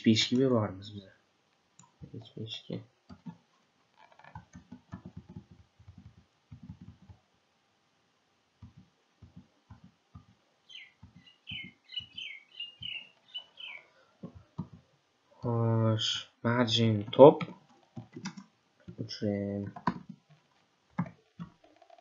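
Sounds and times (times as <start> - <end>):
computer keyboard typing: 4.2 - 7.2, 17.4 - 19.0, 19.7 - 20.2, 21.0 - 22.0
small bird chirping: 10.6 - 14.0.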